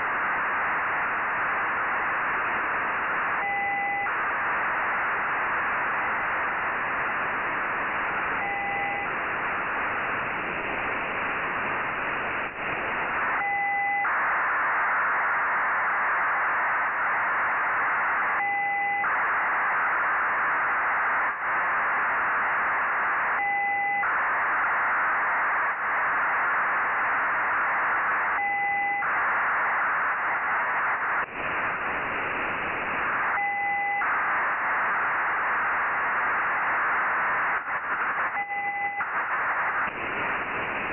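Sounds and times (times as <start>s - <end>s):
radio hiss: 0.0s - 40.9s
two-tone radio bursts: 8.3s - 9.2s, 12.7s - 40.9s.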